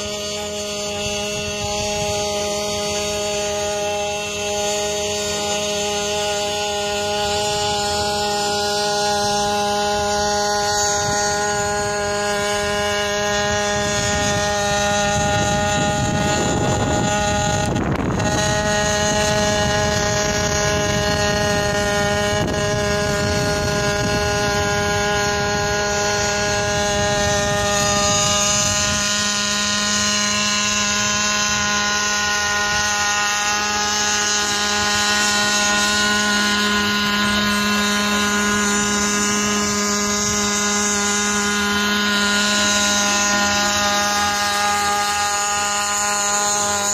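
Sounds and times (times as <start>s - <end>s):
drone hovering: 0.0s - 46.9s
wind noise rush: 0.1s - 46.9s.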